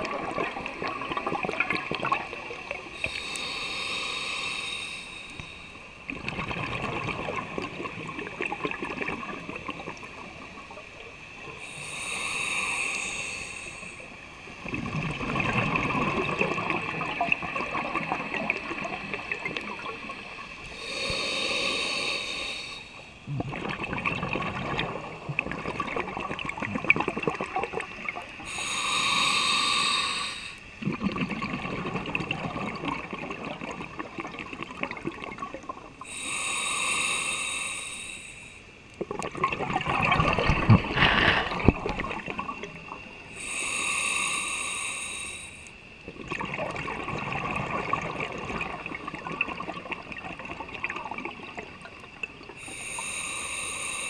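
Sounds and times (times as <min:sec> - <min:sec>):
gurgling exhaust bubbles: 0:00.0 - 0:02.8, 0:06.1 - 0:10.4, 0:14.6 - 0:20.0, 0:23.2 - 0:28.3, 0:30.8 - 0:35.9, 0:39.0 - 0:42.9, 0:46.1 - 0:52.6
regulator inhalation hiss: 0:03.0 - 0:06.0, 0:11.6 - 0:14.5, 0:20.1 - 0:23.2, 0:28.3 - 0:30.8, 0:36.0 - 0:38.8, 0:43.0 - 0:46.0, 0:52.6 - 0:54.0.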